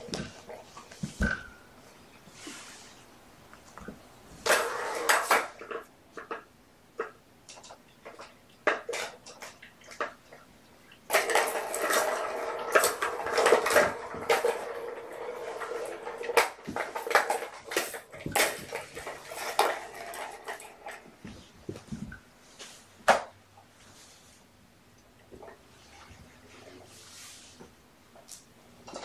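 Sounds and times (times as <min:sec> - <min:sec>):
plastic balls rattling in toy: 0:11.1 - 0:21.2.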